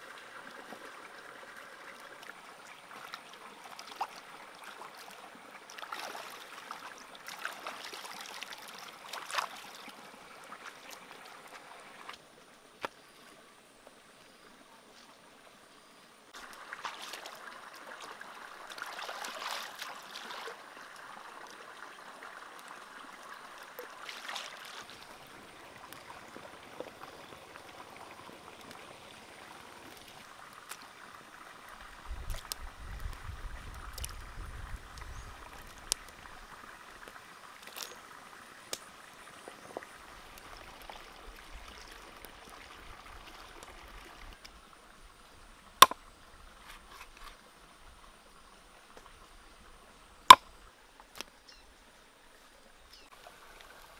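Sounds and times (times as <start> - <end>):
water splashing in a wok: 16.4 - 28.1.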